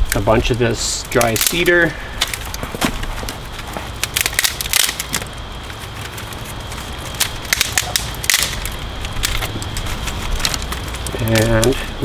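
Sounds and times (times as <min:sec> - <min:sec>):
twigs snapping and crackling: 0:00.0 - 0:12.0.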